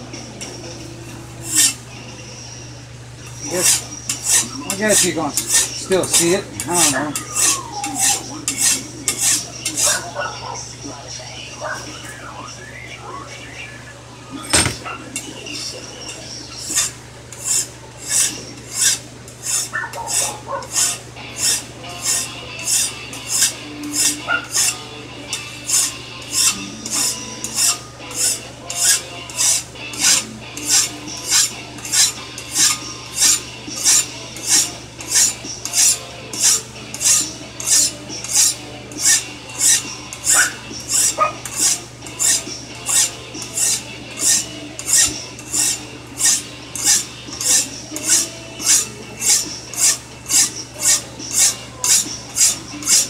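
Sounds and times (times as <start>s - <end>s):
file rasping on steel blade: 1.4s - 1.8s, 3.5s - 10.0s, 16.6s - 24.8s, 25.6s - 53.0s.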